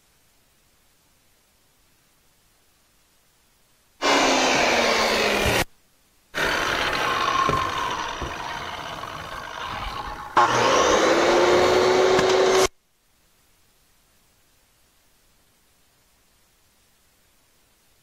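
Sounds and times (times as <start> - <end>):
circular saw cutting plywood: 4.0 - 5.7, 6.4 - 12.7.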